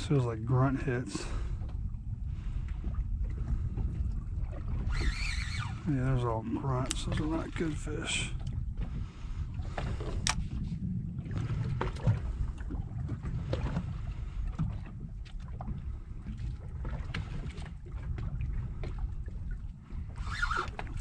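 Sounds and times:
low rumble: 0.0 - 5.0, 5.6 - 20.1
water lapping against boat hull: 0.0 - 21.0
small splashes and knocks: 6.7 - 9.0.

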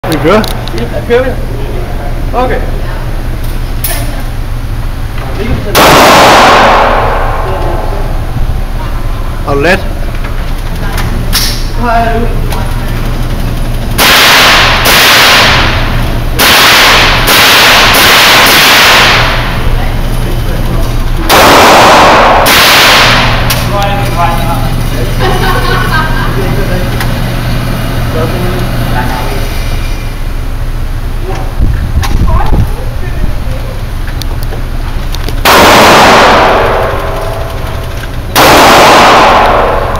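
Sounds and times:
rifle shots echoing indoors: 5.7 - 8.3, 14.0 - 19.6, 21.3 - 23.7, 35.4 - 39.9.

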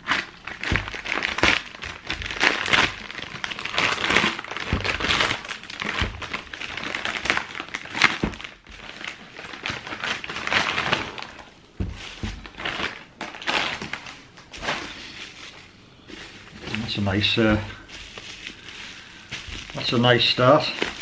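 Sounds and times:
plastic bag crinkling: 0.0 - 21.0.

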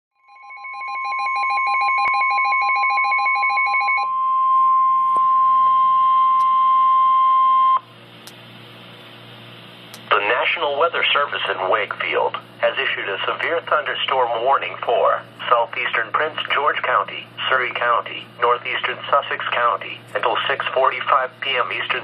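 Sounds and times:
steady warning alarm tone: 0.2 - 7.9
low hum and hiss: 5.5 - 22.0.

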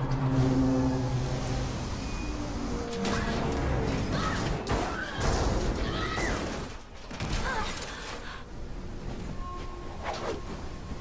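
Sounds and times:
high squealing glides: 0.0 - 5.2.

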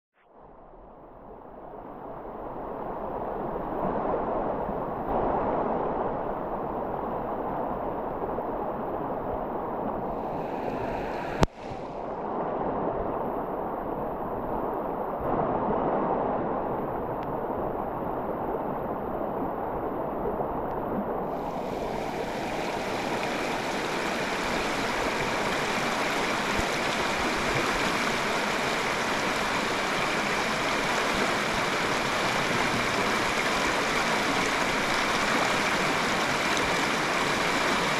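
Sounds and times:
river rushing over rocks: 21.4 - 37.9.

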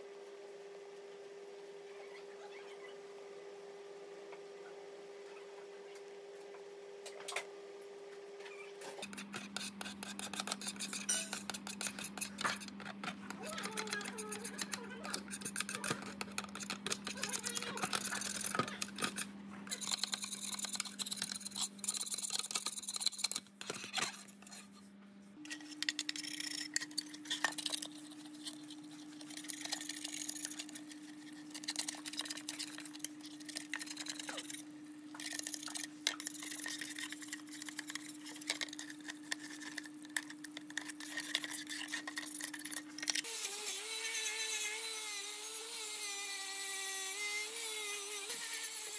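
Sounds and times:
brush scrubbing steel: 9.0 - 24.7, 25.5 - 42.8
knife scraping paint off steel: 9.0 - 24.7, 25.5 - 43.3.

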